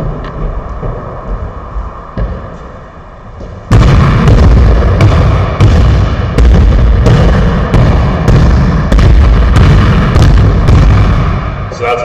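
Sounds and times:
basketball bouncing on wooden floor: 3.4 - 11.4.

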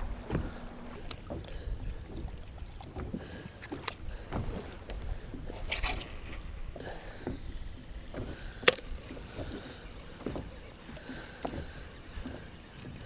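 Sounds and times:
low wind rumble: 0.0 - 13.0
water slapping boat hull: 0.0 - 13.0.

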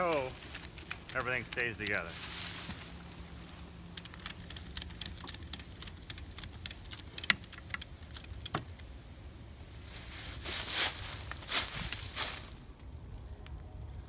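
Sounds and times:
ratchet strap clicking: 3.9 - 8.6
short rustle: 9.8 - 12.7.

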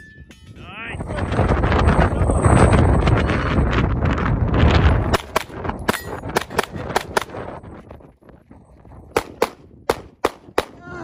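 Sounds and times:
pistol shots: 9.1 - 10.8.

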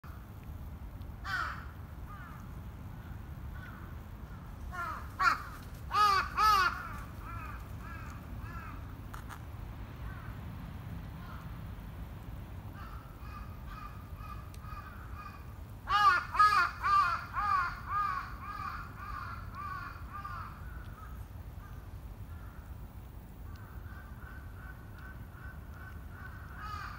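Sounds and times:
crows cawing: 1.2 - 2.4, 3.0 - 8.9, 12.8 - 22.7, 23.5 - 26.9.

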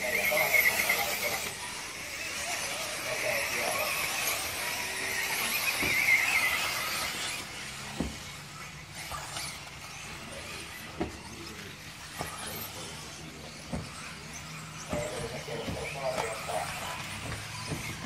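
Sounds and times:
electric motors whining: 0.0 - 18.0.

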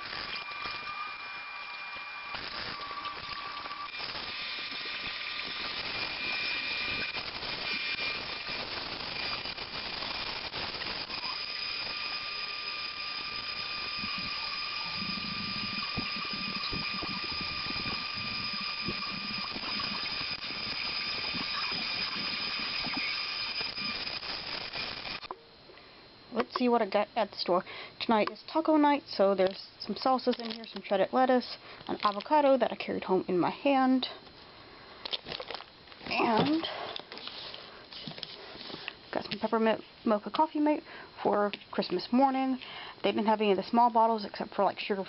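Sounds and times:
steady high-pitched tone: 0.0 - 34.2, 36.0 - 37.3.

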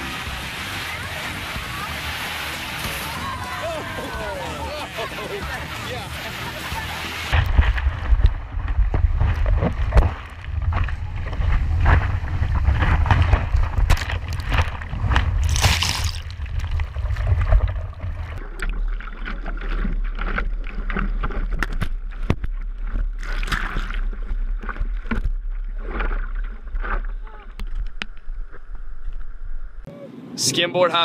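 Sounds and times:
surf churning and splashing: 0.0 - 27.5
low rumble of water: 0.0 - 29.9
wind buffeting microphone: 7.3 - 18.4.

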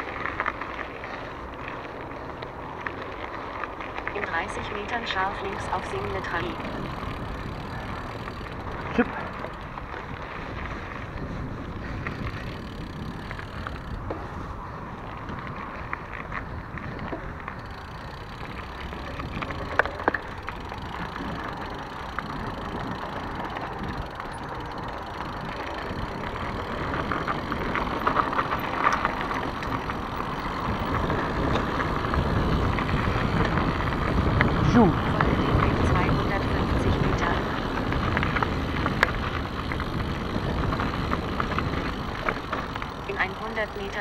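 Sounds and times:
bike rattling and clicking: 0.0 - 44.0
bike tyres rumbling on dirt: 0.0 - 44.0.

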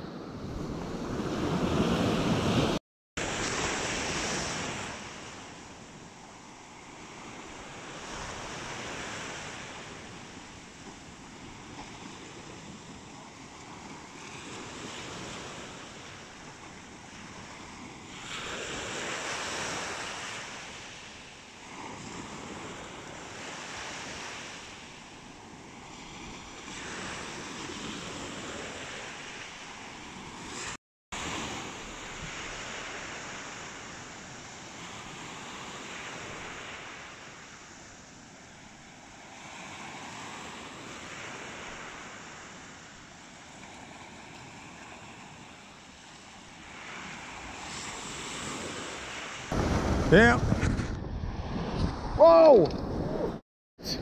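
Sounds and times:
surf breaking on beach: 0.5 - 5.7, 43.6 - 53.4
wind buffeting microphone: 49.5 - 53.4.

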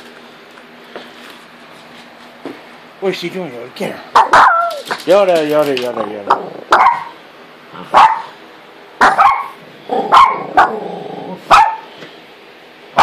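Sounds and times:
small dog barking: 4.1 - 4.9, 6.3 - 7.2, 7.8 - 8.4, 9.0 - 10.8, 11.5 - 11.9.

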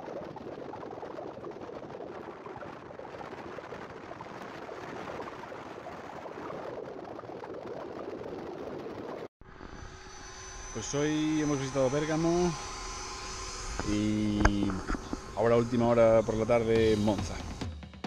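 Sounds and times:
wind rushing over microphone: 0.0 - 9.3.

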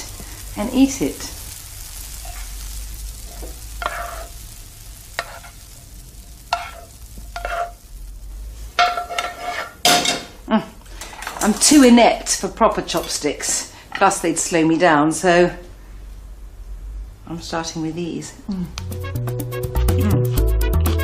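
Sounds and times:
rice sizzling in a frying pan: 0.0 - 15.2
utensil scraping and knocking pan: 3.3 - 4.3, 5.2 - 5.6, 6.4 - 7.8, 8.8 - 10.3.

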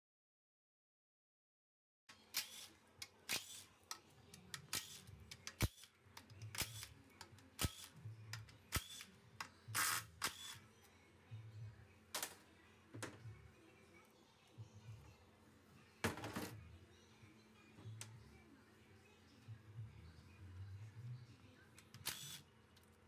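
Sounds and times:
cordless power tool spinning: 22.0 - 22.4.

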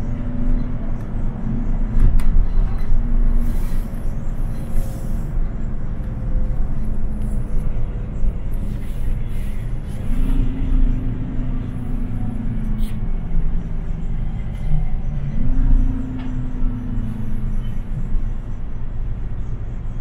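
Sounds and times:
bus engine drone: 0.0 - 20.0
road rumble: 0.0 - 20.0.

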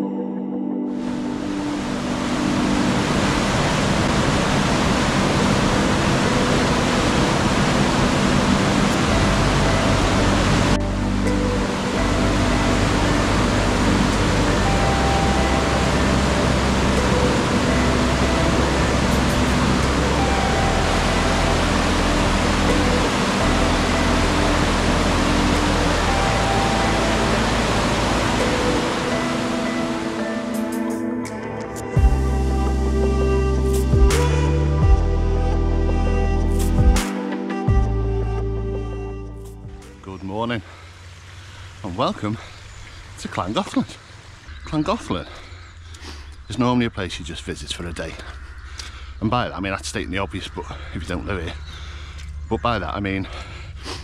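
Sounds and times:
low hum: 0.0 - 30.5
soft ambient music: 0.0 - 53.7
river rushing over rapids: 1.0 - 30.8.

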